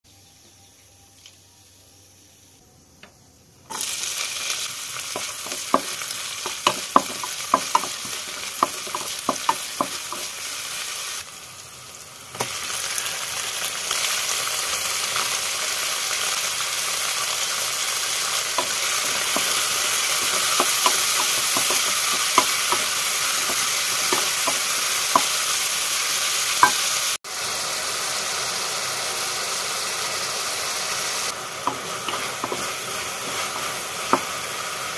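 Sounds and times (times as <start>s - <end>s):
oil crackling and popping: 3.7s - 27.2s
food sizzling in hot oil: 3.7s - 34.9s.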